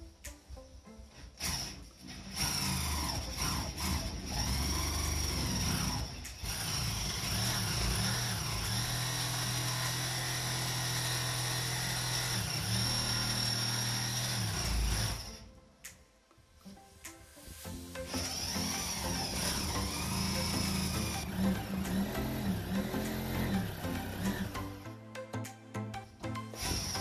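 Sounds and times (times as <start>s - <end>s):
jigsaw cutting wood: 1.3s - 15.5s, 18.0s - 24.8s, 26.5s - 27.0s.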